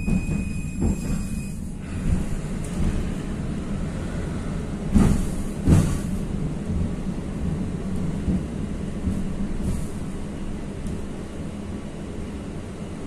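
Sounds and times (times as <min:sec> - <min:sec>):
tram wheels knocking on track: 0:00.0 - 0:01.4, 0:04.8 - 0:07.0
tram rumbling: 0:00.0 - 0:13.0.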